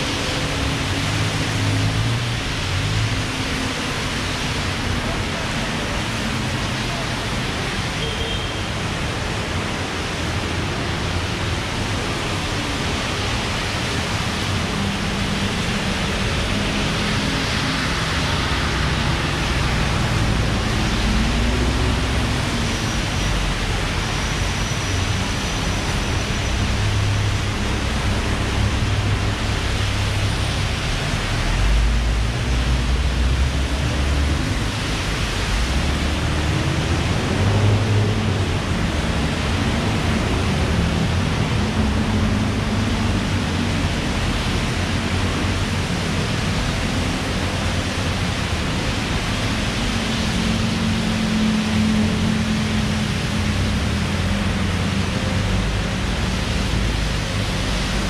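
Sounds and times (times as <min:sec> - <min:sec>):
heavy rain: 0:00.0 - 0:58.0.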